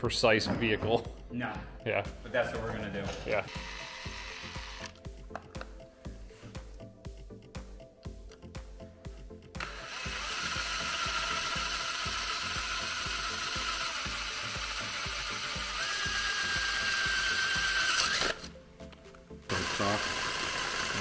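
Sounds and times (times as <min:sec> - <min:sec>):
drill whining into metal: 0:03.5 - 0:05.0, 0:09.6 - 0:18.5, 0:19.5 - 0:21.0.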